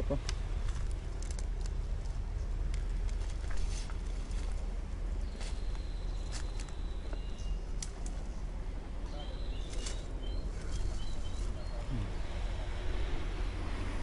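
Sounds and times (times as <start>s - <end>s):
steady low rumble: 0.0s - 14.0s
footsteps snapping brush: 0.2s - 4.7s, 5.3s - 8.2s, 9.6s - 10.9s
bird chirping: 5.2s - 13.9s.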